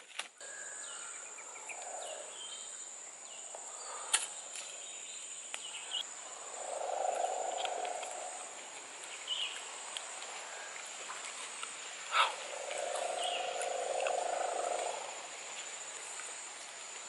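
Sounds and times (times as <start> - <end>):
insect drone: 0.4 - 17.0
bird chirps: 12.1 - 15.0.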